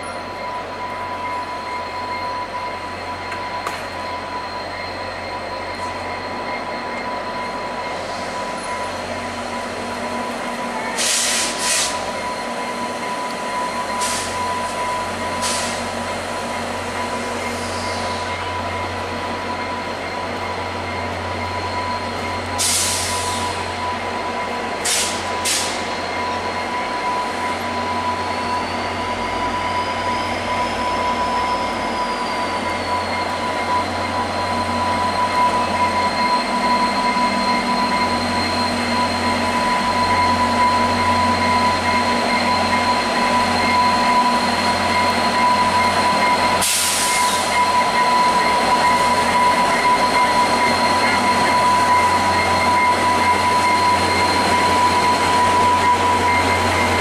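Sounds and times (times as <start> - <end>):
diesel locomotive engines running: 0.0 - 57.0
brief air hiss: 11.0 - 12.0, 15.4 - 15.8, 46.6 - 47.4.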